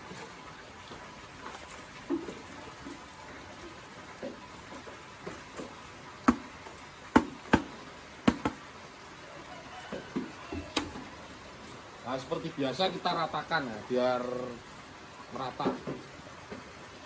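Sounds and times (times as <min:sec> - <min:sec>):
bucket knocking: 0:06.2 - 0:06.5, 0:07.1 - 0:08.6.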